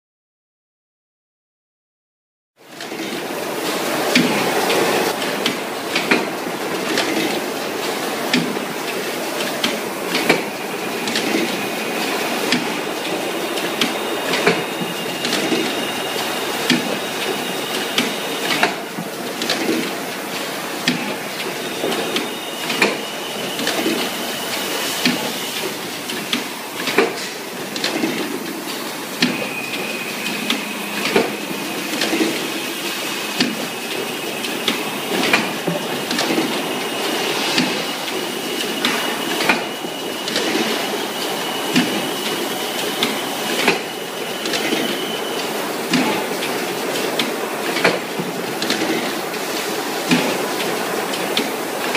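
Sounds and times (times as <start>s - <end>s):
high machine whine: 9.1s - 47.0s.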